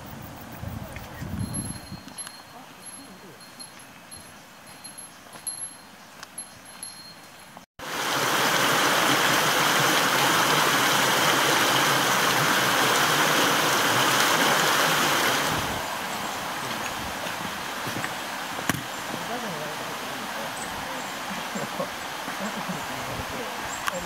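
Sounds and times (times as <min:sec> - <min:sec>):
stream rushing over rocks: 0:07.8 - 0:24.0.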